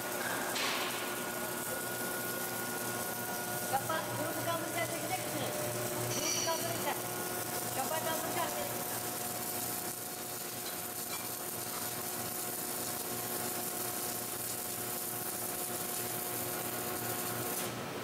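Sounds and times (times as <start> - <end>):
machine hum: 0.0 - 10.4
welder hiss and sizzle: 0.0 - 17.8.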